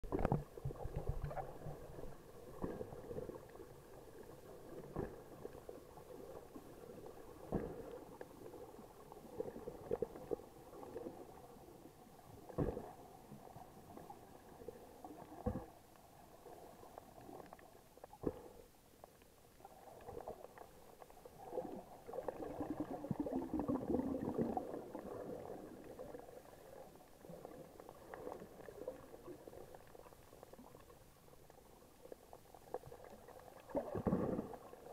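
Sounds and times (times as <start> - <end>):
water gurgling underwater: 0.0 - 11.6, 19.6 - 34.9.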